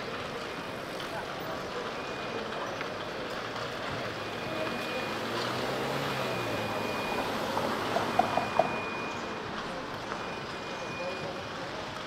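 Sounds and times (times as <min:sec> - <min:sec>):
traffic: 0:00.0 - 0:12.0.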